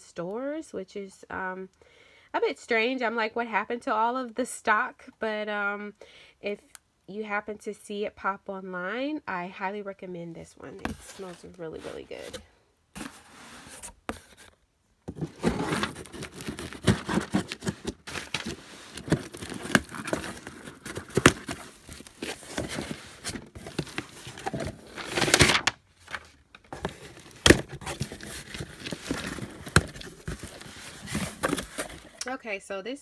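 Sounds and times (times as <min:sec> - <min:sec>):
cardboard box and paper rustling: 0:10.8 - 0:14.5, 0:15.1 - 0:32.2.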